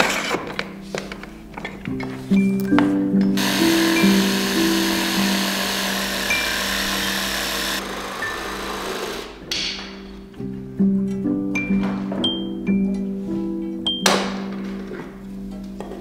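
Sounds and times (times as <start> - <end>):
background music: 0.0 - 16.0
jigsaw cutting wood: 3.4 - 9.5.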